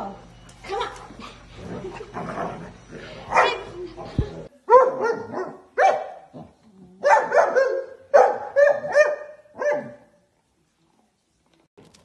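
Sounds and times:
puppy barking and yipping: 7.0 - 10.0.

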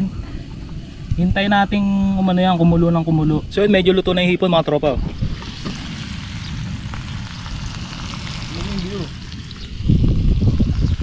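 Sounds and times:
shrimp boiling and sizzling: 0.0 - 11.0
low rumble: 4.8 - 11.0.

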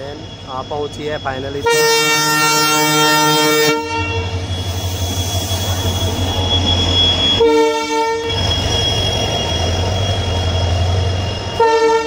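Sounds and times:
locomotive engine humming: 0.0 - 12.0
locomotive horn blast: 1.6 - 4.4, 7.0 - 9.8, 11.5 - 12.0.

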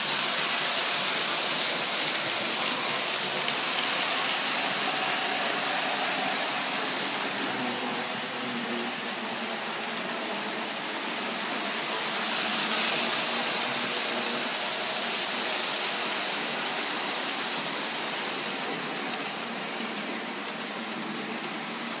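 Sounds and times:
model train whirring on rails: 0.0 - 22.0.

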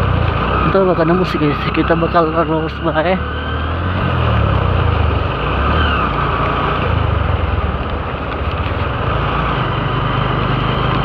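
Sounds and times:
motorcycle engine hum: 0.0 - 11.0
wind and wet road noise: 0.0 - 11.0.

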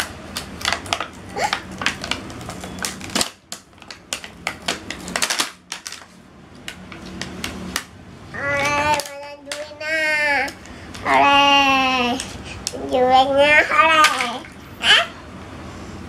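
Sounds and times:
plastic packaging crackling: 0.0 - 7.9.

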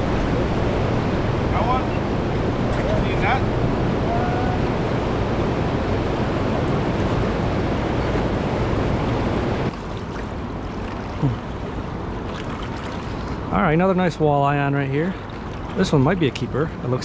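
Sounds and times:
wind buffeting microphone: 0.0 - 9.7
fast river current rushing: 0.0 - 13.6.

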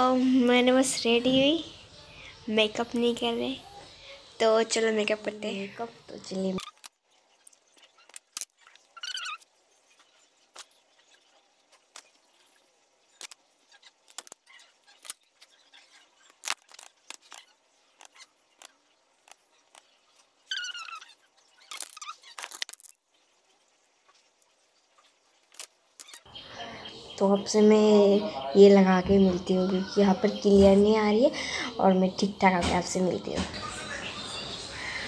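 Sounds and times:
rustling: 6.6 - 26.3.

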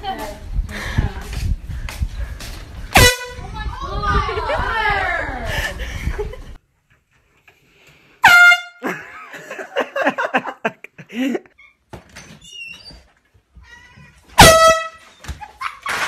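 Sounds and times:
air horn blast: 3.0 - 3.5, 8.2 - 8.9, 14.4 - 15.1
child's voice: 3.4 - 5.4.

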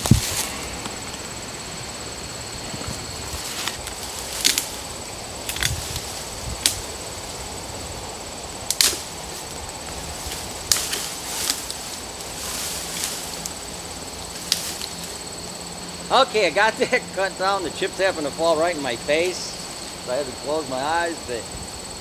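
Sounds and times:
branches snapping: 0.0 - 1.3, 3.0 - 7.4, 8.6 - 15.3.

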